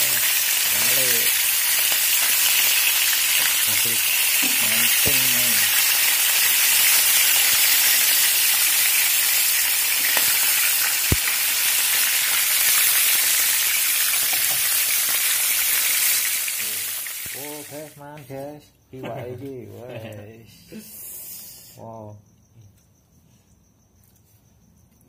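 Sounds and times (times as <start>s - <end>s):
fish sizzling in hot oil: 0.0s - 18.0s.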